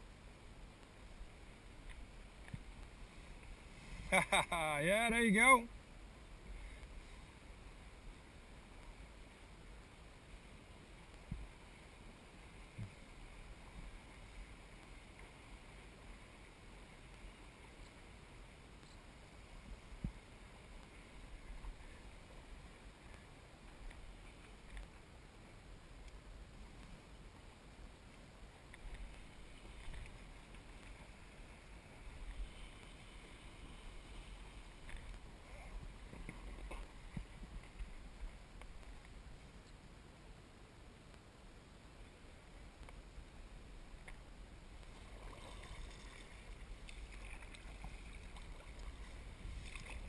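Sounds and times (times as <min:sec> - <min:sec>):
faint water hiss: 0:00.0 - 0:50.0
kayak paddle dipping and dripping: 0:28.1 - 0:39.8, 0:43.9 - 0:50.0.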